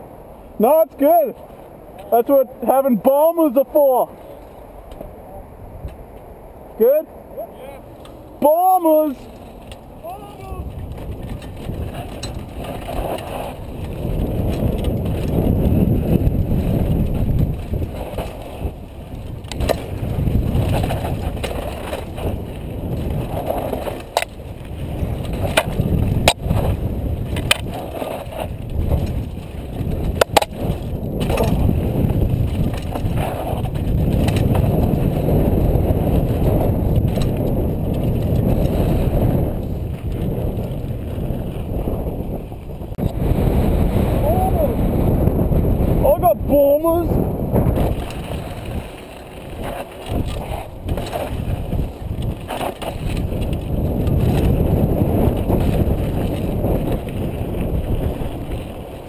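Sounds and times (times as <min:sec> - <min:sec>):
bike tyres on dirt: 0:03.5 - 0:59.0
wind on microphone: 0:03.8 - 0:59.0
bike knocking over bumps: 0:10.6 - 0:39.1.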